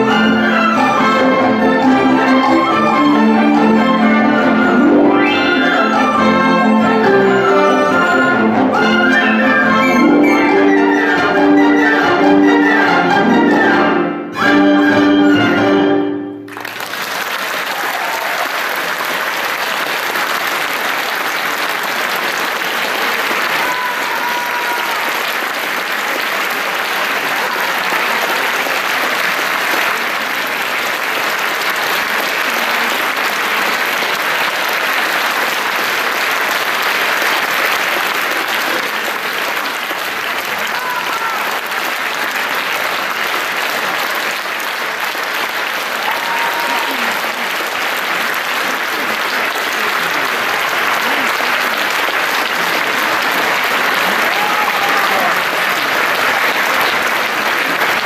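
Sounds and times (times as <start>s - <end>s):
audience applause: 0.0s - 13.6s, 16.4s - 58.0s
orchestra with flute soloist: 0.0s - 16.5s.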